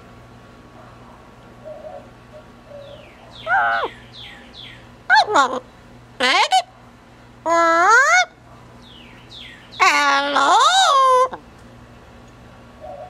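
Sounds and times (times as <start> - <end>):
parrot calling: 1.6 - 6.7, 7.5 - 8.4, 9.3 - 11.4.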